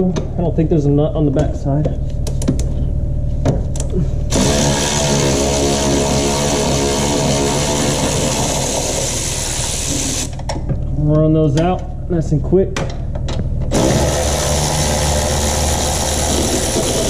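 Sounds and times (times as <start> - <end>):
power ratchet spinning: 4.3 - 10.4, 13.7 - 17.0.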